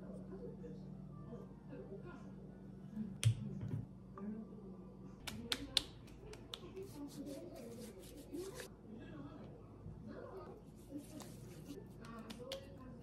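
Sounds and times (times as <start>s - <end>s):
hands rubbing and patting: 5.3s - 8.7s, 10.7s - 12.8s.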